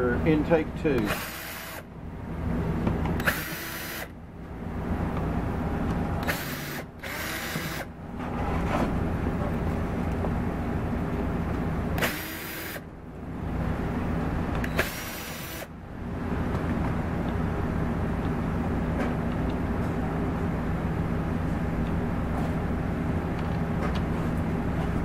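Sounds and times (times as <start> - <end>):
steady low rumble: 4.1 - 7.2, 15.7 - 25.0
cordless drill spinning out screws: 6.2 - 7.9.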